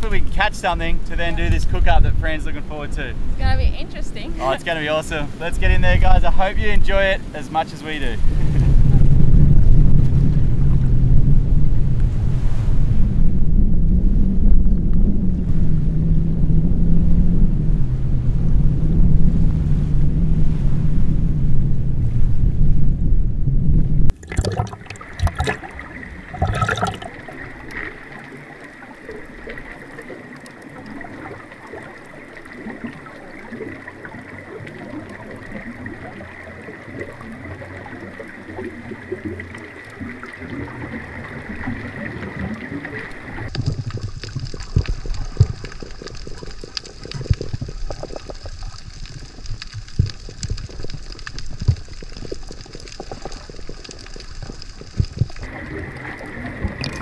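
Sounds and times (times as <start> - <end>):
muffled underwater wash: 0.0 - 57.0
sharp splashes: 24.1 - 51.7.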